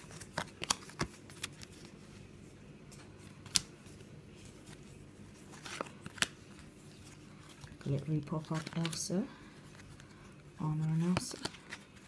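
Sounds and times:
trading cards rustling: 0.0s - 12.0s
card snapping: 3.4s - 3.7s, 5.7s - 6.4s.

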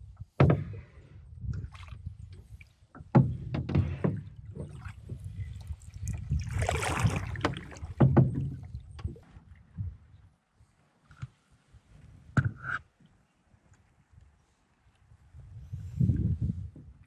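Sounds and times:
paddle strokes splashing in water: 1.6s - 9.5s.

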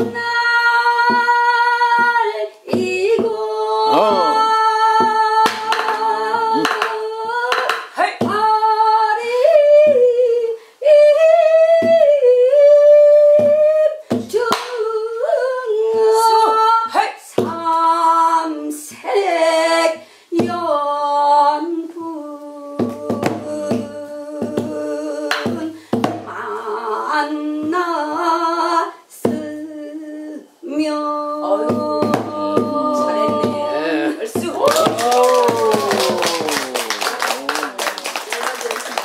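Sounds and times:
rhythmic drum knocks: 0.0s - 9.0s, 9.6s - 10.3s, 13.2s - 16.7s, 17.3s - 17.8s, 20.4s - 20.8s, 22.7s - 28.0s, 31.4s - 36.8s
woman singing folk song: 0.0s - 34.7s.

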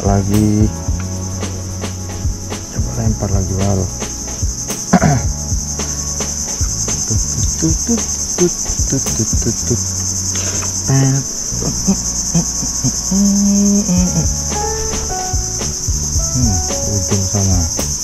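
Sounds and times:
high-pitched insect chorus: 0.0s - 18.0s.

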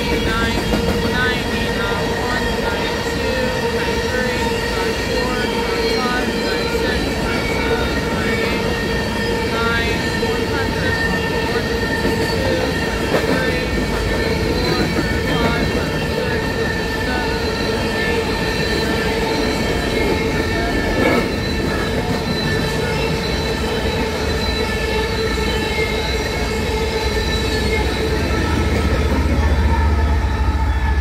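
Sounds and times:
train cars rolling: 0.0s - 31.0s
wheels squealing and ringing: 13.9s - 31.0s.

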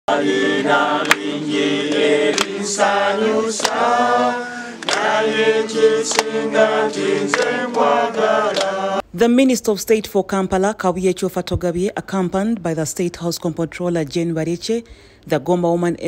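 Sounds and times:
group singing unaccompanied: 0.1s - 9.0s
hands clapping: 0.8s - 9.0s.

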